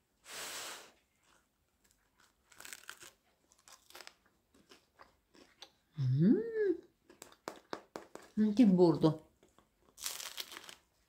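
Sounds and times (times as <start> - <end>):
crunching bites into crisp crust: 1.2 - 5.8, 9.4 - 11.0.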